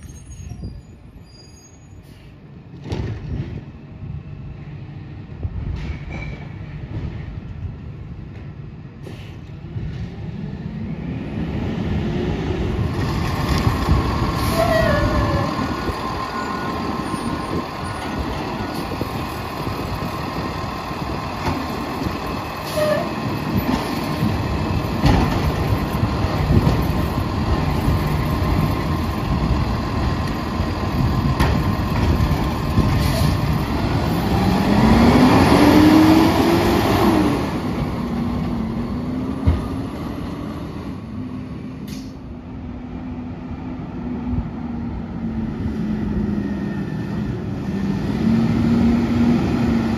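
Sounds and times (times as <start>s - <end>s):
knocks and clunks: 25.0s - 25.7s.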